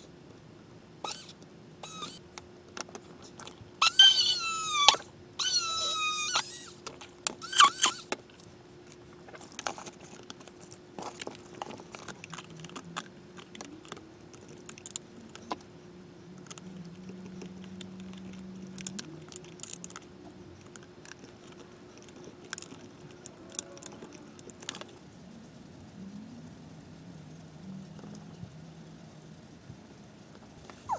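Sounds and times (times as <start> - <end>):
faint steady hum: 0.0 - 30.9
short falling squeals: 7.4 - 8.1
plastic and metal parts rattling: 9.3 - 15.6.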